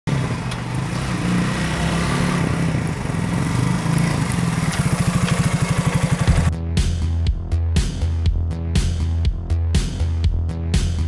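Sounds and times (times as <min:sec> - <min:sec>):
motorcycle engine running: 0:00.1 - 0:06.6.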